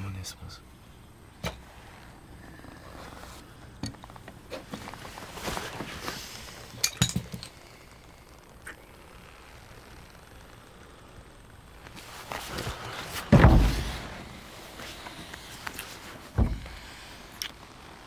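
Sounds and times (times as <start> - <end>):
clothing rustle: 1.6 - 6.7, 11.8 - 17.7
breathing: 16.6 - 17.4.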